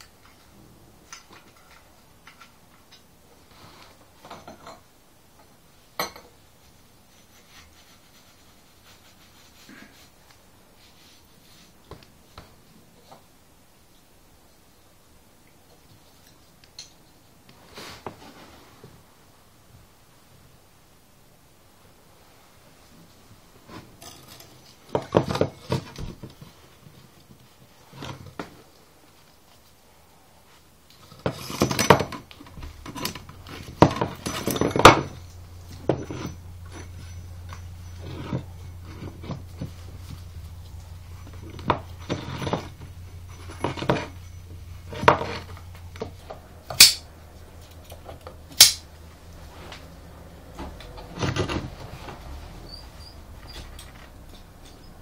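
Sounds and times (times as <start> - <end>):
metal parts clinking and scraping: 31.0 - 48.9.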